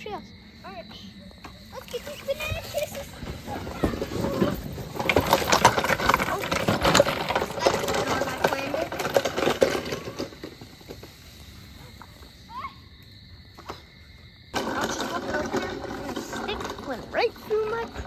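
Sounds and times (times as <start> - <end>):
rustling: 1.6 - 12.5.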